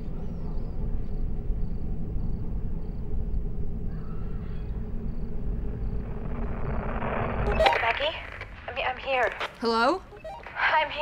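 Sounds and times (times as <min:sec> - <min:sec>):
low rumbling drone: 0:00.0 - 0:07.6
radio static: 0:07.3 - 0:09.4.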